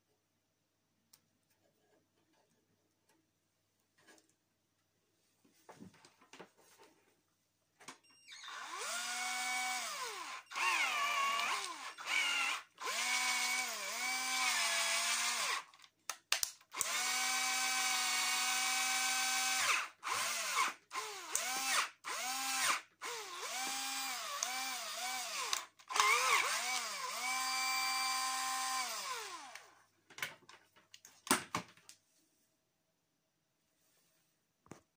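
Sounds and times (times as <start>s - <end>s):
cordless drill motor whining: 8.3s - 15.7s, 16.7s - 29.7s.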